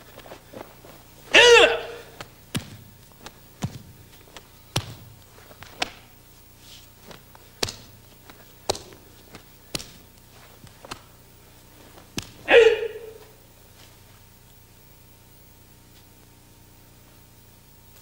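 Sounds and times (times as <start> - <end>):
loud kiai shout: 1.3 - 2.2, 12.3 - 13.4
sharp snaps and slaps: 2.2 - 6.1, 7.0 - 11.1, 12.0 - 12.5.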